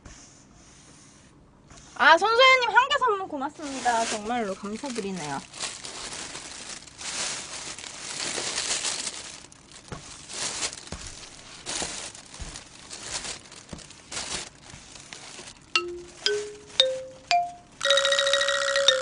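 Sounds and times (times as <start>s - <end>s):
paper wipe rustling on table: 3.5s - 16.9s
chime melody: 15.8s - 19.0s.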